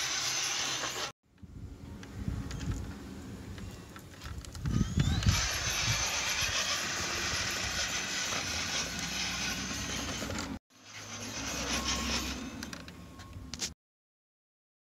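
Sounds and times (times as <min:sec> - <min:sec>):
toy truck motor and gears whirring: 0:00.0 - 0:01.2, 0:03.5 - 0:13.8.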